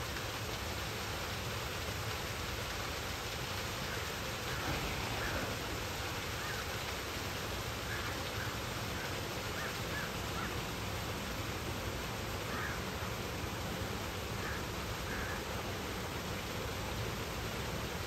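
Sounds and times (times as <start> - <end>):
steady rushing noise: 4.4 - 8.0
faint bird calls: 7.8 - 10.7, 12.5 - 12.9, 14.4 - 15.5.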